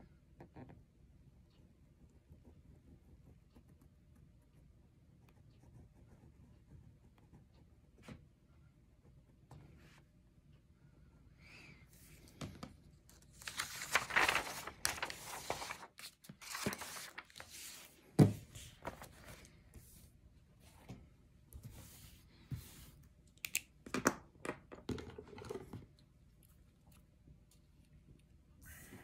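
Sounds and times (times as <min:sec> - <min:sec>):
plastic film crinkling: 0:13.4 - 0:17.5.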